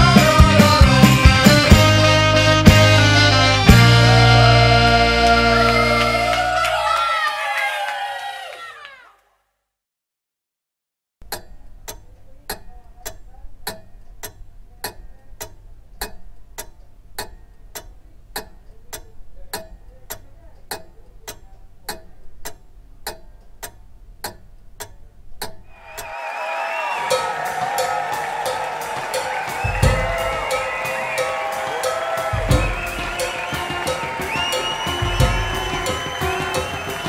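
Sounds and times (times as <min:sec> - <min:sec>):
clock ticking: 0:11.2 - 0:26.1.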